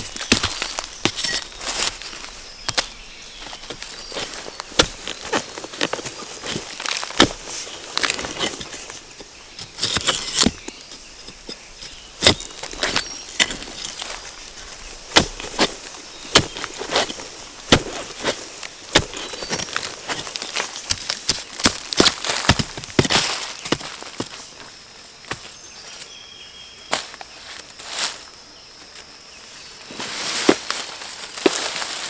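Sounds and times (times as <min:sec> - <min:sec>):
sharp knocks and cracks: 0:00.0 - 0:02.0, 0:15.1 - 0:24.3
rustle or crunch: 0:00.0 - 0:24.8, 0:29.7 - 0:32.0.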